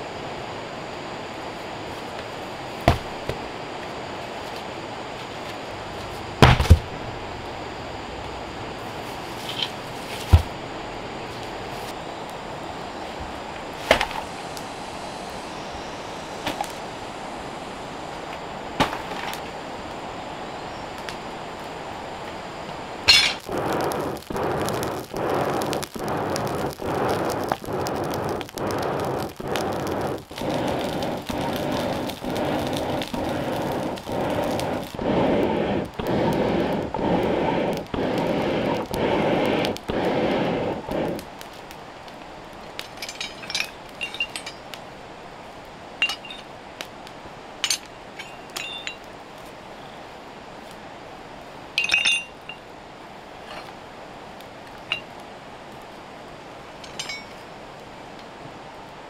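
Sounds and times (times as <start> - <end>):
forge fire roaring in pulses: 0.0 - 57.2
iron tools clinking: 23.1 - 23.4, 42.9 - 44.7, 46.0 - 46.5, 47.6 - 49.0, 51.8 - 52.6, 56.8 - 57.4.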